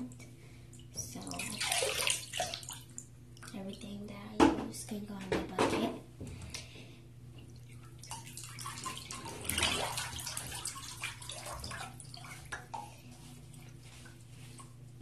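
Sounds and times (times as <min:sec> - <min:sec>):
bath water sloshing and splashing: 0:00.0 - 0:04.0, 0:06.3 - 0:15.0
water dripping and trickling: 0:07.4 - 0:13.0.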